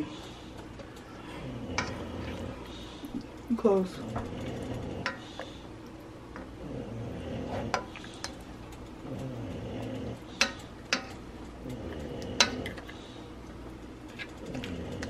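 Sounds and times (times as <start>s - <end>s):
spoon stirring pot: 0.0s - 6.6s, 7.4s - 9.2s, 9.9s - 13.0s.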